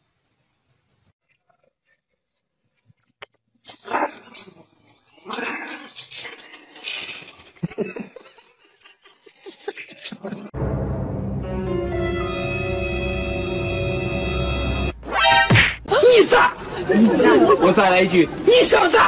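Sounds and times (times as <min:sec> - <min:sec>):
music: 0:10.6 - 0:15.4.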